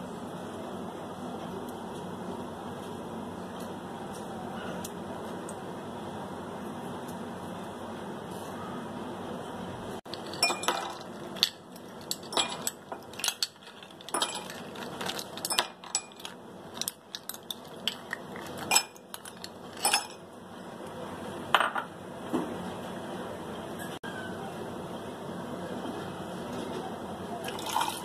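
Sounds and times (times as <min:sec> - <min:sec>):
ice cubes clinking against glass: 0:10.1 - 0:20.2, 0:27.5 - 0:28.0.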